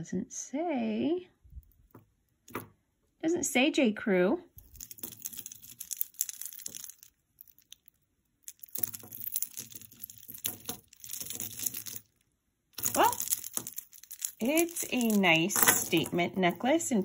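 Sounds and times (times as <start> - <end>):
jewelry crinkling and clicking: 1.5 - 2.7, 4.6 - 17.0.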